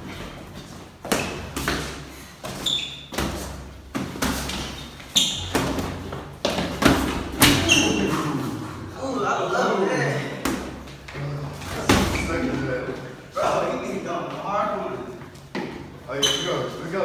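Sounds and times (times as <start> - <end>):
boxing gloves thudding: 1.0 - 7.9.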